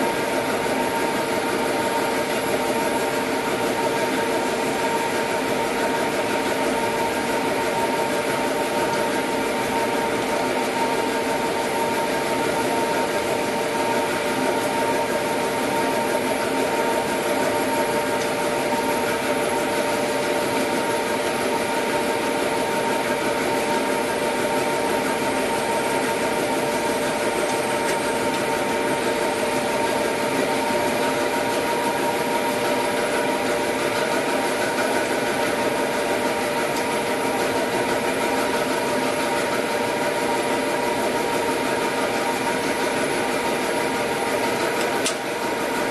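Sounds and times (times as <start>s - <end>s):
printing machine humming and whining: 0.0s - 45.9s.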